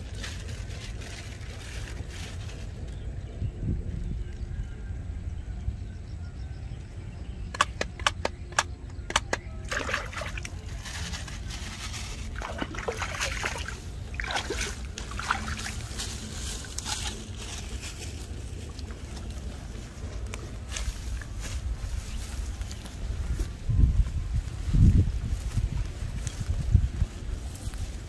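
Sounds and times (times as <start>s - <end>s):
sharp clicks: 7.5s - 9.5s
splashing in muddy water: 9.6s - 17.4s.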